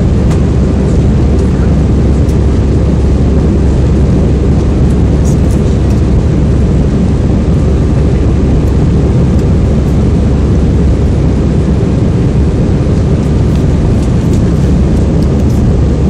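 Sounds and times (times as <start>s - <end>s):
jet engines and rushing air: 0.0s - 16.0s.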